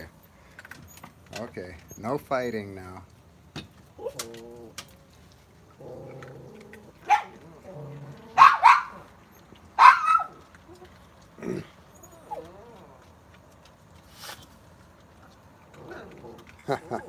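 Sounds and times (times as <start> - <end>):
raccoons snarling and growling: 3.8 - 17.0.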